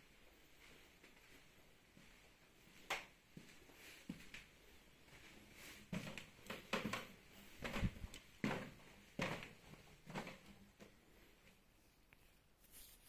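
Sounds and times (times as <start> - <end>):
footsteps on wooden stairs: 5.9 - 11.0.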